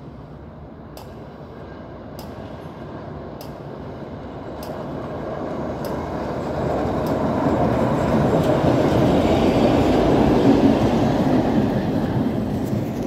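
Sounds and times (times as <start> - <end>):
maintenance train rumbling on tracks: 0.0 - 13.0.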